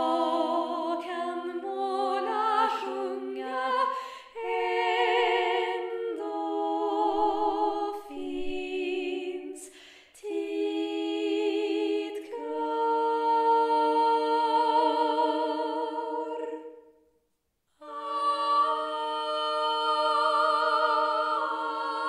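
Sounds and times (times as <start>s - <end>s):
woman singing a cappella harmony: 0.0s - 16.8s, 17.8s - 22.0s.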